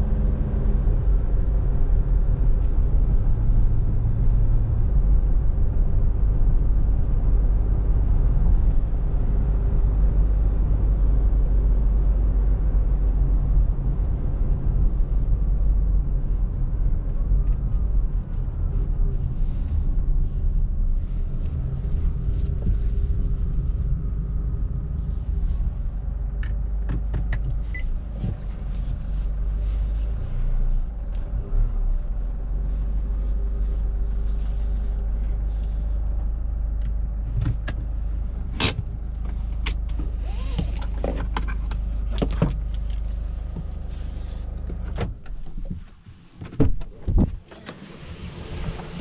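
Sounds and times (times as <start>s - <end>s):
diesel engine running: 0.0s - 45.4s
clicks and knocks in cabin: 26.4s - 27.6s, 46.4s - 47.8s
car door latch clunking: 46.4s - 47.9s.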